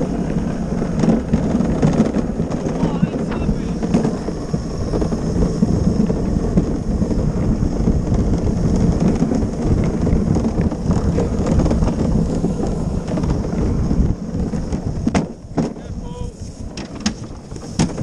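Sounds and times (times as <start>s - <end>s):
wheels rolling on asphalt: 0.0s - 18.0s
wind on microphone: 0.0s - 18.0s.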